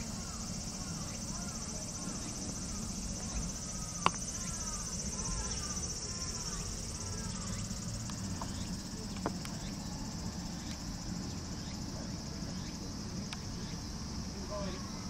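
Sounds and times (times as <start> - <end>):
high-pitched insect chorus: 0.0 - 15.0
faint clicks: 4.0 - 4.3.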